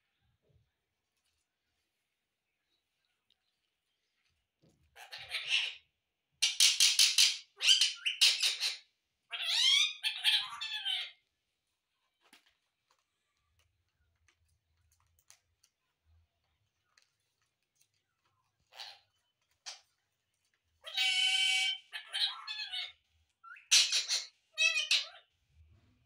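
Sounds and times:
parakeet squawking: 0:05.0 - 0:05.8, 0:06.4 - 0:11.2, 0:18.7 - 0:19.0, 0:20.8 - 0:25.3.

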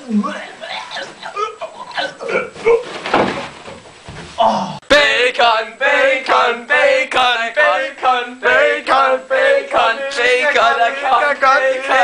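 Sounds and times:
people singing: 0:04.9 - 0:12.0.

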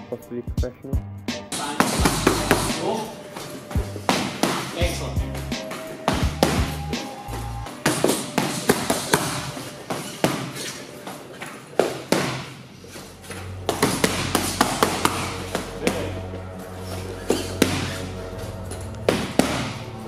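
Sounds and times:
boxing gloves smacking mitts: 0:01.5 - 0:12.7, 0:13.4 - 0:16.2, 0:17.3 - 0:18.2, 0:19.0 - 0:20.0.

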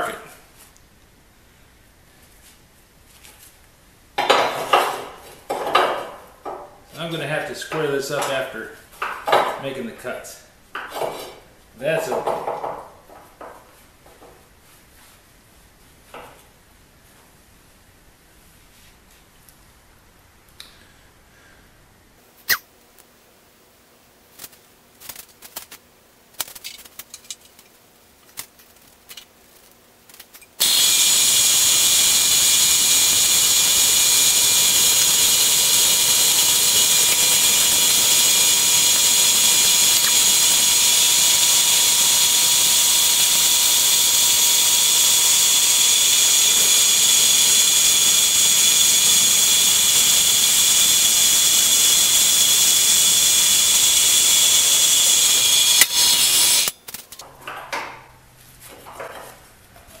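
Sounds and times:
band saw cutting steel: 0:30.6 - 0:56.8.

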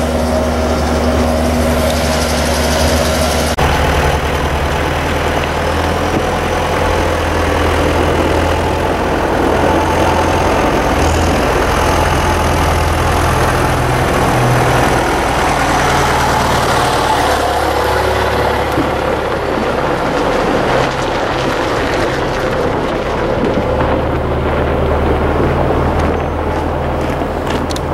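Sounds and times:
tractor diesel engine running: 0:00.0 - 0:27.9.

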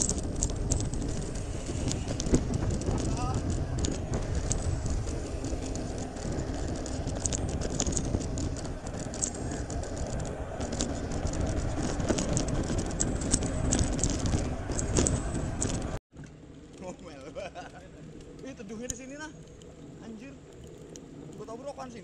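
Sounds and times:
wind noise on microphone: 0:00.0 - 0:16.0
bike clicks and rattles: 0:00.0 - 0:19.7
bicycle tyre rumble: 0:00.0 - 0:22.0.

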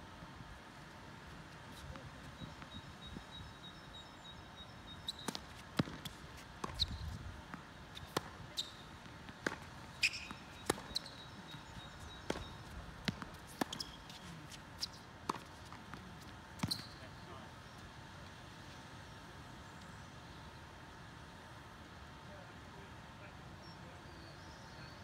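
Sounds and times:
ball bouncing on court: 0:05.1 - 0:14.2, 0:15.3 - 0:17.0
racket hitting tennis ball: 0:07.9 - 0:11.2.

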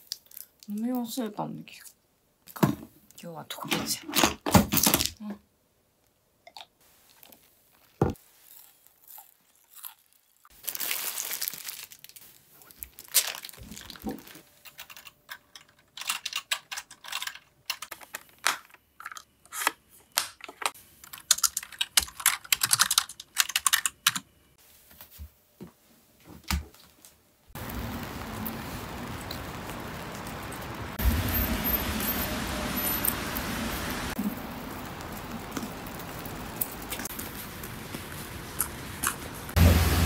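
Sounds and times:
typing on computer keyboard: 0:21.2 - 0:24.3
steady hiss: 0:27.5 - 0:40.0.

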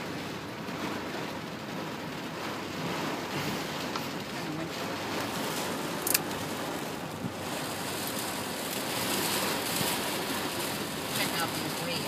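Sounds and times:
surf washing on shore: 0:00.0 - 0:12.0
wind buffeting microphone: 0:00.3 - 0:12.0.

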